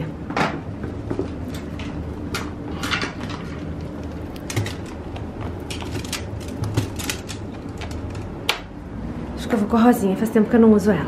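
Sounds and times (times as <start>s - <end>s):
handbags clicking and rustling: 2.7s - 8.4s.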